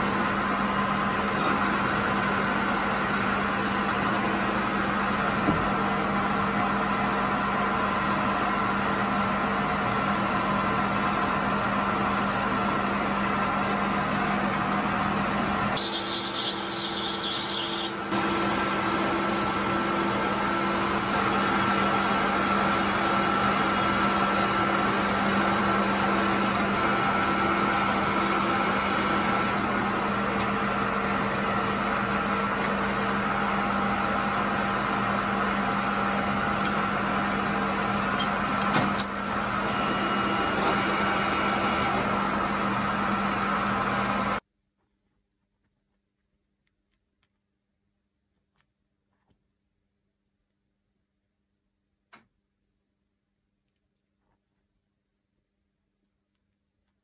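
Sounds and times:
lathe motor hum and whine: 0:00.0 - 0:44.4.

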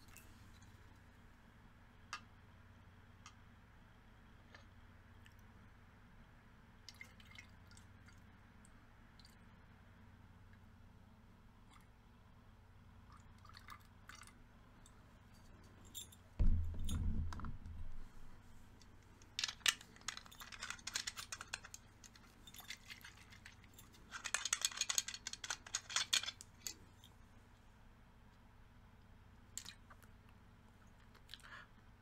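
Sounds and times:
dull thump: 0:16.4 - 0:18.4.

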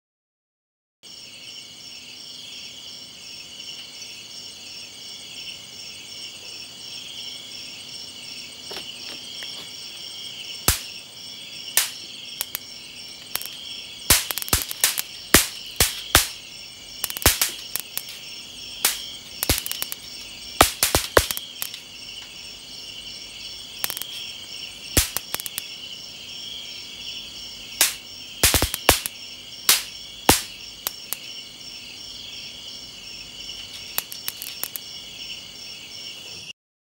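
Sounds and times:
night insect chorus trilling: 0:01.0 - 0:36.5
bug zapper snapping and crackling: 0:10.7 - 0:11.0, 0:11.8 - 0:12.6, 0:13.2 - 0:16.4, 0:17.0 - 0:18.2, 0:18.8 - 0:21.8, 0:23.8 - 0:24.2, 0:25.0 - 0:25.7, 0:27.8 - 0:31.3, 0:33.8 - 0:34.8.

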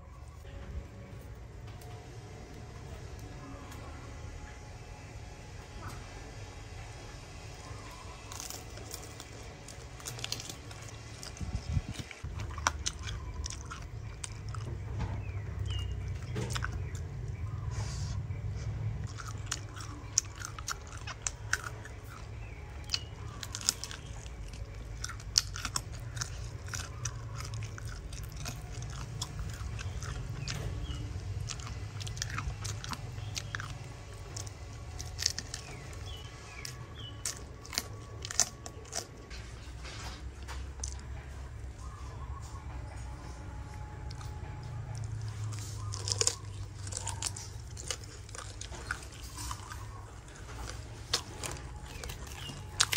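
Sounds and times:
low chewing sound: 0:00.0 - 0:52.9
crunching bites: 0:07.6 - 0:17.5, 0:19.0 - 0:39.6, 0:44.1 - 0:52.9.

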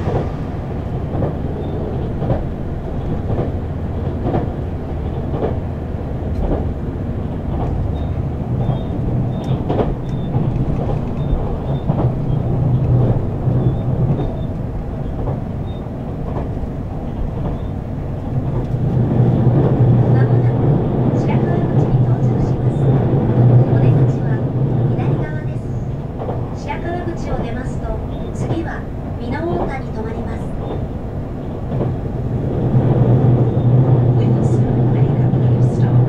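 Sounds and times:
train rumble: 0:00.0 - 0:36.0.

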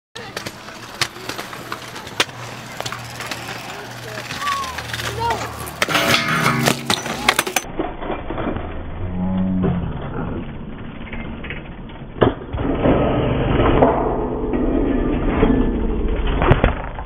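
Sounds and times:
bike landing on concrete: 0:00.2 - 0:08.7.

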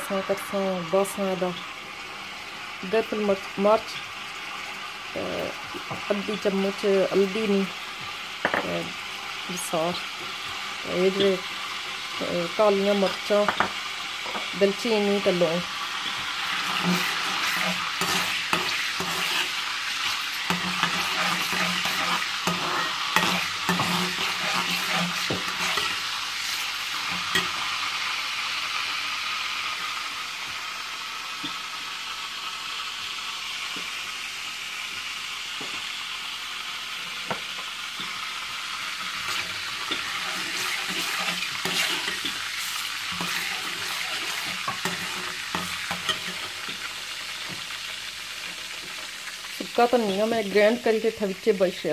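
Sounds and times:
spices sizzling in hot oil: 0:00.0 - 0:51.9.

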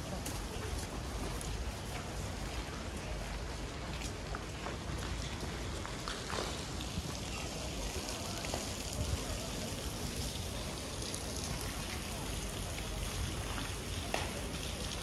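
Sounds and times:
faint voices: 0:00.0 - 0:15.0.

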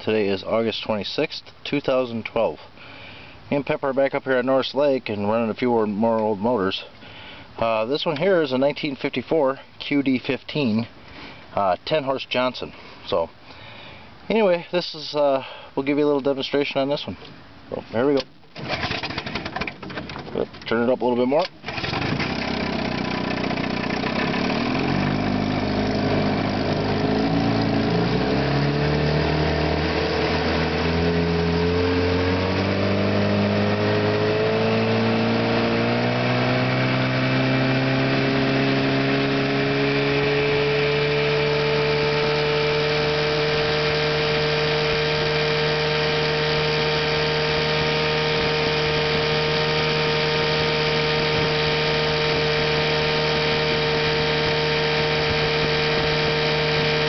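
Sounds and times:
outboard motor revving: 0:18.6 - 0:19.8, 0:21.6 - 0:57.0.

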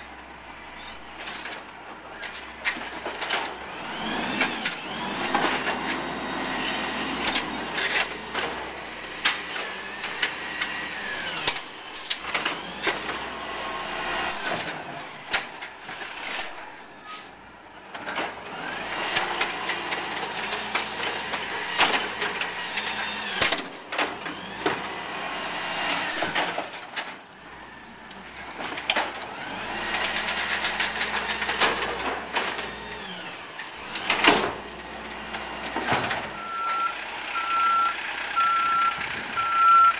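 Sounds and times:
diesel engine revving: 0:03.5 - 0:15.1, 0:29.2 - 0:39.9.

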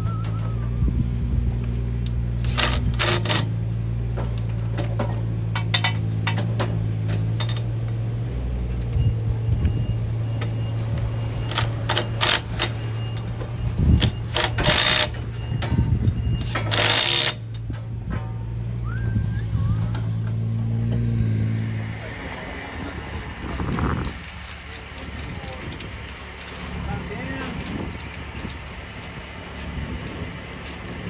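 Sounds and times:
impact driver hammering: 0:14.0 - 0:15.2, 0:16.4 - 0:17.4.

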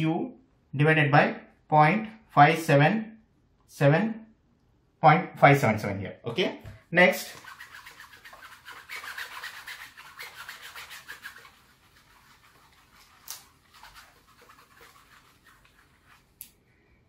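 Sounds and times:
eraser scrubbing whiteboard: 0:07.2 - 0:16.5.

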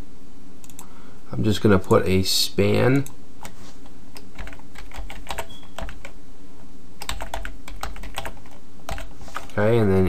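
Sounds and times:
computer keyboard typing: 0:03.4 - 0:06.2, 0:07.0 - 0:09.6.

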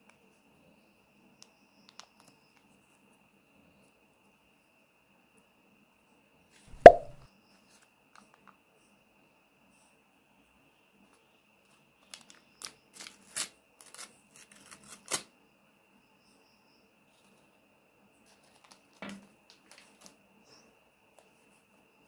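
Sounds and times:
soft knock: 0:06.8 - 0:07.2.

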